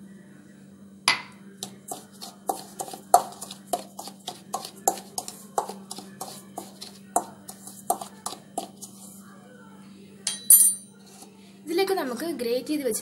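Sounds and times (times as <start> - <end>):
metal spoon scraping steel bowl: 1.6 - 9.0.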